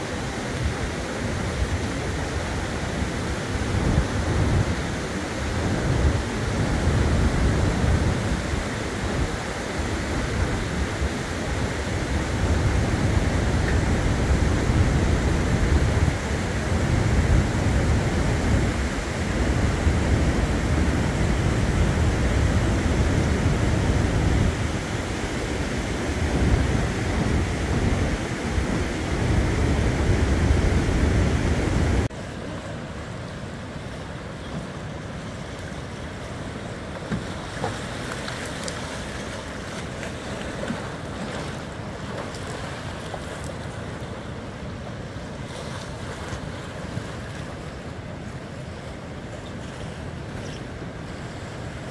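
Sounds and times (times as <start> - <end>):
river water rushing: 0.0 - 51.9
wind buffeting microphone: 0.6 - 32.1.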